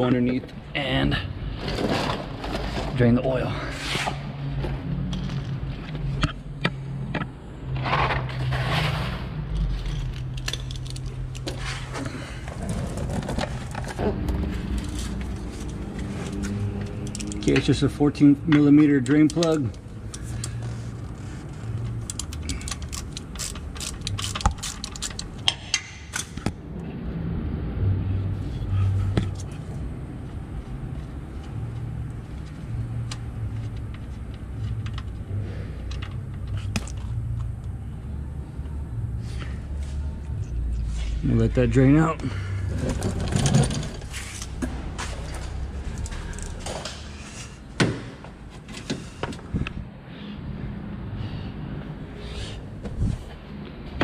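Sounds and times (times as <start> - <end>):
socket ratchet clicking: 22.0 - 26.4.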